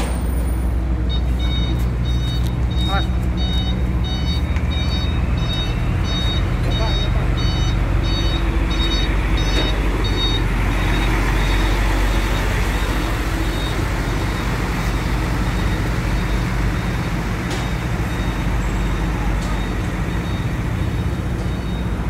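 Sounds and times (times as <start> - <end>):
diesel machinery rumbling: 0.0 - 22.0
high electronic warning beeper: 1.1 - 14.5.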